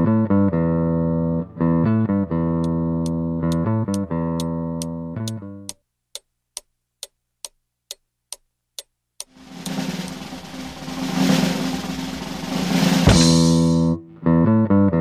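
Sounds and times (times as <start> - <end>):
sharp ticks: 2.6 - 12.2
snare drum roll: 9.3 - 13.8.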